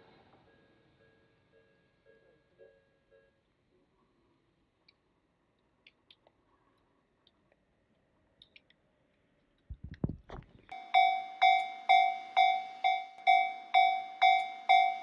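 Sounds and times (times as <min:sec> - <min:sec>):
level crossing warning bell: 0:10.7 - 0:15.0.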